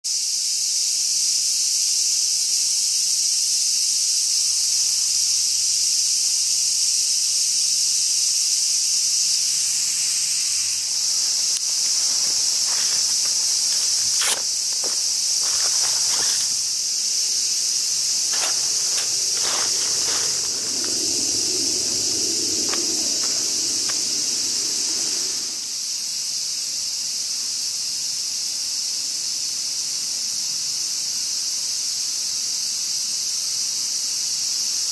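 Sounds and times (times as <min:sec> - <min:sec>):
cicadas droning: 0:00.0 - 0:34.9
fabric rustling: 0:18.3 - 0:20.7.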